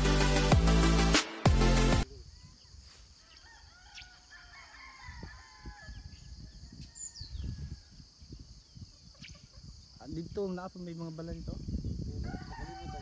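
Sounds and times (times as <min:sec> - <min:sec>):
electronic intro music: 0:00.0 - 0:02.0
roosters crowing: 0:02.2 - 0:10.0, 0:12.1 - 0:13.0
wind rumbling on microphone: 0:04.8 - 0:13.0.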